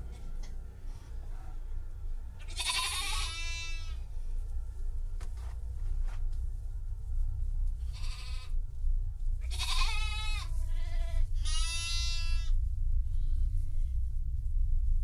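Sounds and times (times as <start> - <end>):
steady low rumble: 0.0 - 15.0
sheep-like bleating: 2.5 - 4.0, 9.5 - 12.5.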